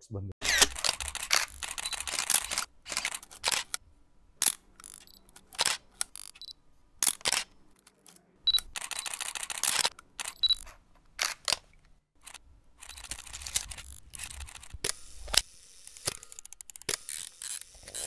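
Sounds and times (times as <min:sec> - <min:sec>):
sharp clicks and snaps: 0:00.4 - 0:03.8, 0:04.4 - 0:18.0.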